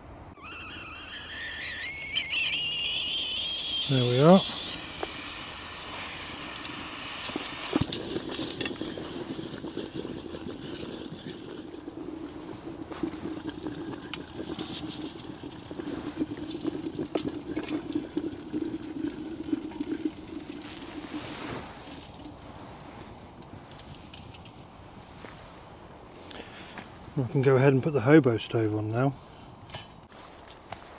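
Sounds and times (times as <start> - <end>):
kettle whistle shrilling: 0.4 - 8.0.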